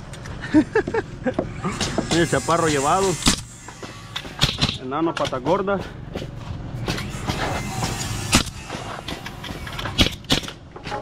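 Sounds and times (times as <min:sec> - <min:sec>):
pneumatic nailer firing: 0:01.5 - 0:04.9, 0:06.8 - 0:11.0
low hum: 0:06.0 - 0:11.0.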